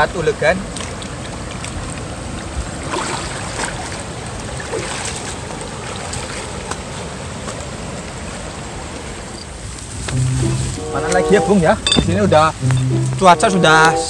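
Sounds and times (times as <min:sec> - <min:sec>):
river rushing over rocks: 0:00.0 - 0:14.0
footsteps on riverbank: 0:00.6 - 0:14.0.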